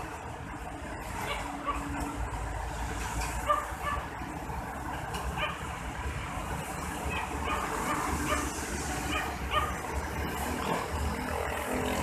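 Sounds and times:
dog barking: 3.4s - 4.0s, 5.4s - 5.6s, 7.1s - 8.5s, 9.1s - 9.8s.

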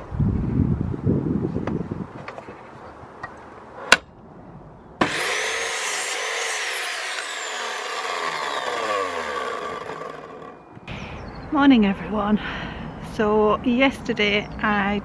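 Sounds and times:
mitre saw cutting wood: 5.0s - 10.7s
saw motor winding down: 5.0s - 10.8s.

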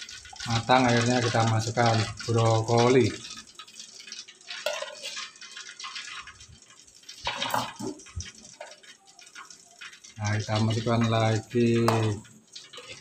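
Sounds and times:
spoon knocking metal pot: 4.6s - 6.0s, 7.2s - 8.9s, 10.6s - 13.0s.

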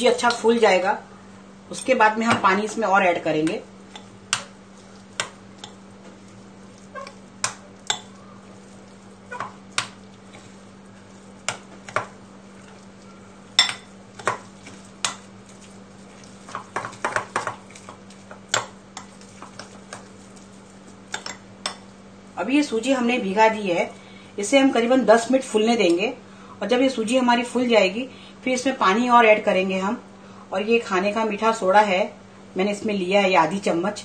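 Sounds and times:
steady low hum: 0.0s - 34.0s
spoon clinking on glass bowl: 13.5s - 13.9s.

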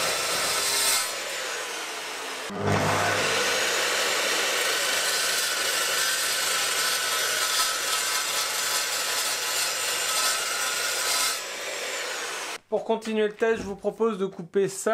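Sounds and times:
saw motor whine: 0.0s - 7.8s, 10.4s - 12.6s
metal saw grinding metal bar: 2.4s - 11.4s.

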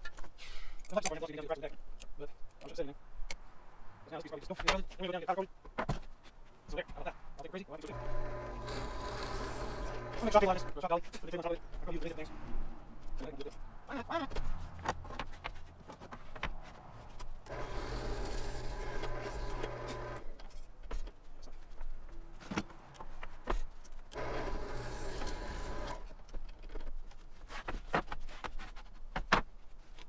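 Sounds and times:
timber sliding along bench: 7.9s - 10.7s, 17.5s - 20.3s, 24.2s - 26.2s
drill press boring wood: 7.9s - 10.8s, 17.5s - 20.3s, 24.1s - 26.1s.

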